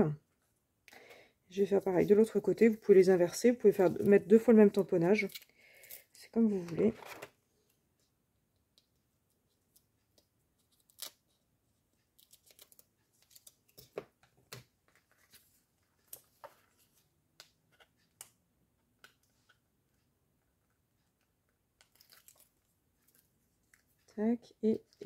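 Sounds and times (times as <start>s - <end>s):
tape and paper clicks and rustles: 12.0s - 18.4s, 21.8s - 24.0s.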